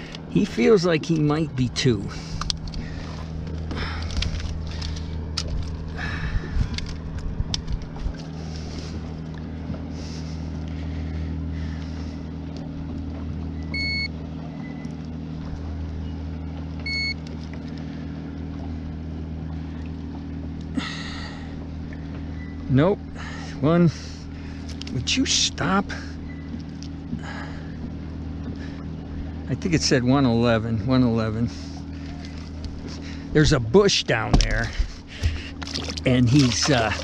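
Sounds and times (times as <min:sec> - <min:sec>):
low motor hum: 0:00.0 - 0:37.0
digital scale beeping: 0:13.7 - 0:14.1, 0:16.9 - 0:17.2.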